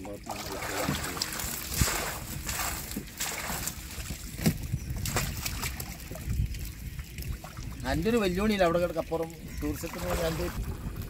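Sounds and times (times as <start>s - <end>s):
water sloshing and splashing: 0.0s - 11.0s
sharp splashes and knocks: 0.3s - 7.8s.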